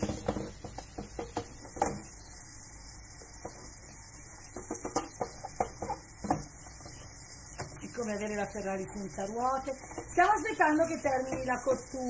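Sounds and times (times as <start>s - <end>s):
kitchen handling clicks and knocks: 0.0s - 2.0s, 4.6s - 6.5s.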